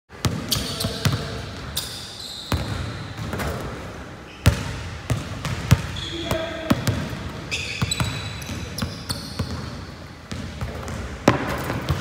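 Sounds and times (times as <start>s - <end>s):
sneaker squeaks: 0.3s - 12.0s
basketball bouncing on wooden floor: 2.5s - 3.7s, 4.5s - 7.1s, 7.8s - 12.0s.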